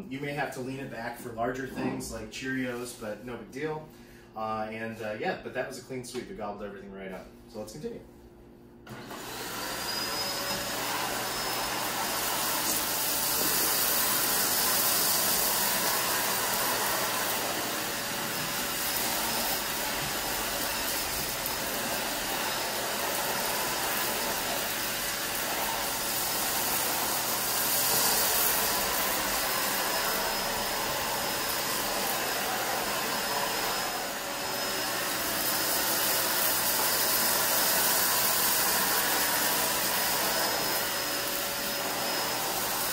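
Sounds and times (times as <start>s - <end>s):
vacuum cleaner running: 8.8s - 42.9s.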